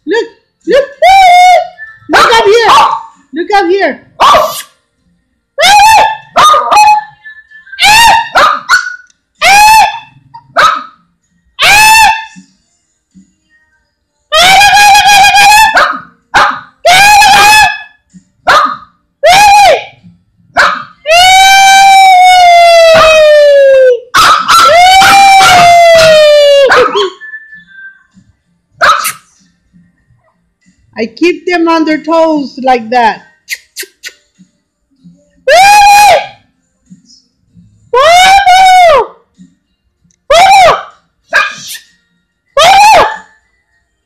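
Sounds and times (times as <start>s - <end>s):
dog yelping: 0.8s - 3.1s, 4.2s - 4.7s, 5.6s - 7.1s, 7.8s - 10.9s, 11.6s - 12.4s, 14.4s - 17.9s, 18.5s - 19.8s, 20.6s - 20.9s, 24.1s - 27.2s, 28.8s - 29.2s, 40.4s - 41.8s
small dog barking: 2.1s - 3.1s, 4.2s - 4.6s, 7.8s - 10.0s, 10.6s - 10.9s, 18.5s - 18.8s, 20.6s - 20.9s, 24.2s - 24.7s, 26.7s - 27.2s, 28.8s - 29.2s
dog howling: 20.6s - 27.2s.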